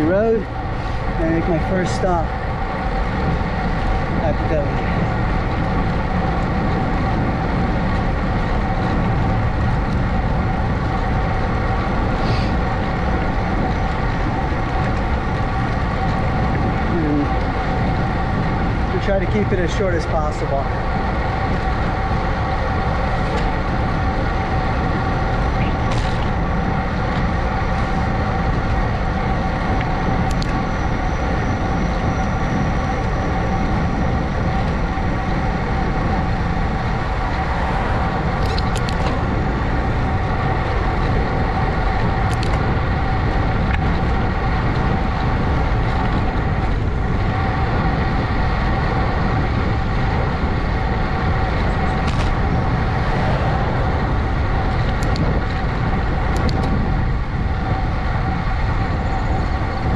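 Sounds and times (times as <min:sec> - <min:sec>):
bicycle tyre noise: 0:00.0 - 0:59.9
constant hum of steady tones: 0:00.0 - 0:59.9
wind rumble on microphone: 0:00.0 - 0:59.9.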